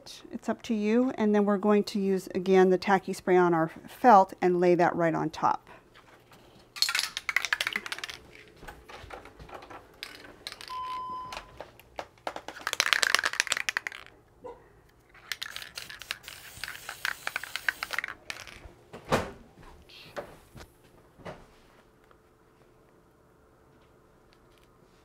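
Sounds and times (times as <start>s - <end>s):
rattling crinkling clicks: 6.8s - 10.8s
short beep: 10.7s - 11.5s.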